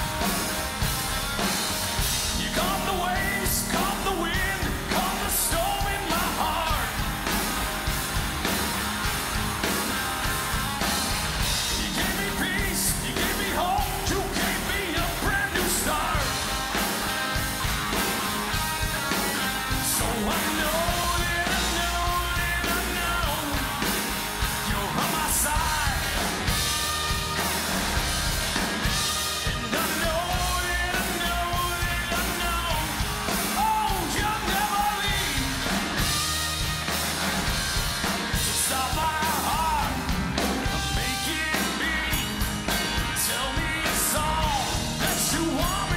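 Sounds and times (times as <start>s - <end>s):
acoustic guitar: 0.0s - 45.9s
bass guitar: 0.0s - 45.9s
drums: 0.0s - 45.9s
electric guitar: 0.0s - 45.9s
man singing lead: 2.0s - 7.4s, 11.4s - 17.6s, 19.0s - 27.2s, 28.8s - 36.3s, 38.3s - 45.9s.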